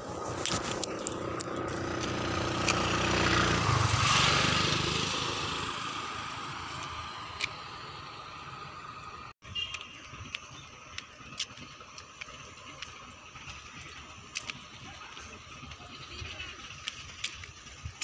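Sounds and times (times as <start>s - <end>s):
motorbike engine passing by: 0.0s - 9.3s.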